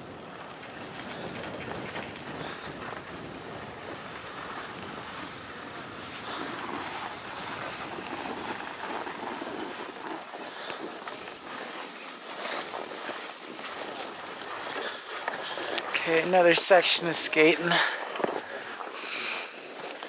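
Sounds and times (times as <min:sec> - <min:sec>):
wind noise on microphone: 0:00.0 - 0:10.6
skis hissing over snow: 0:00.0 - 0:20.0.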